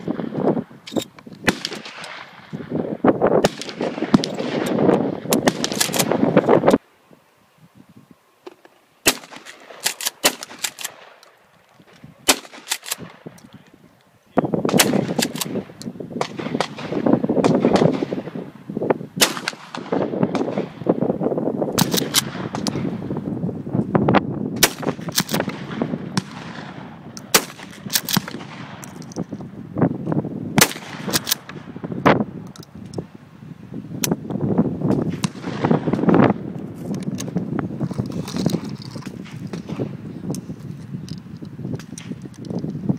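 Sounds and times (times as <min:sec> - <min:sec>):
shotgun firing: 0:01.4 - 0:02.4, 0:09.0 - 0:11.2, 0:12.2 - 0:13.2, 0:14.7 - 0:18.3, 0:19.2 - 0:20.8, 0:24.6 - 0:28.8, 0:30.6 - 0:31.6
other guns firing: 0:01.4 - 0:02.5, 0:12.3 - 0:13.3, 0:14.7 - 0:18.3.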